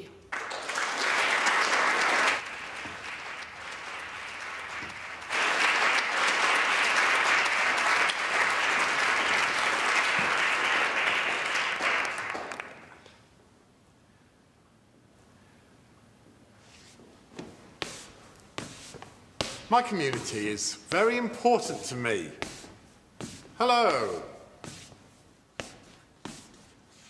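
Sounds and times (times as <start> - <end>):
children clapping: 0.3 - 13.0.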